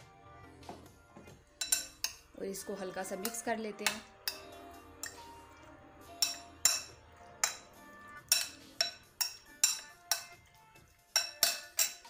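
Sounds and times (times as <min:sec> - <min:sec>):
metal spoon clinking against glass bowl: 0:01.6 - 0:02.3, 0:03.1 - 0:05.4, 0:06.1 - 0:10.4, 0:11.1 - 0:12.0.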